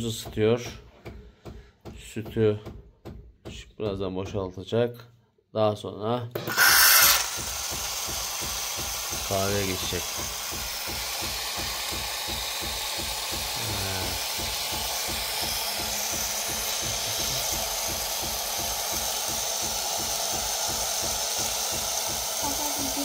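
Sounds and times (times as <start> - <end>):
espresso machine frothing milk: 6.4 - 23.0
pump pulsing rhythmically: 6.5 - 23.0.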